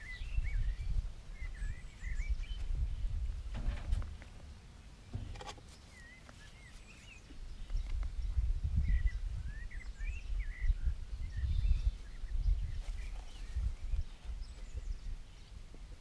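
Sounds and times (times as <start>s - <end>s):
wild birds chirping: 0.0s - 16.0s
low rumbling and bumping on camera: 2.6s - 6.0s.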